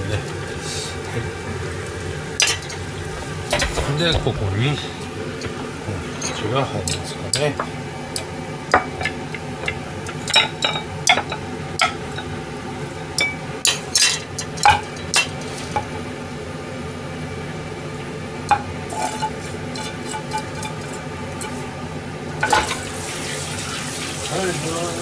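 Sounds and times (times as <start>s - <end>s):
steady low hum: 0.0s - 22.8s
utensils clinking on saucepan: 8.8s - 12.4s, 13.2s - 15.9s, 18.5s - 21.7s, 22.4s - 22.8s.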